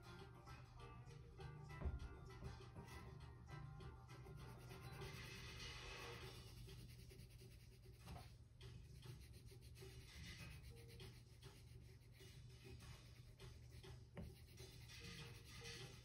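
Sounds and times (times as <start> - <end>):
colored pencil scratching on paper: 4.2 - 16.0.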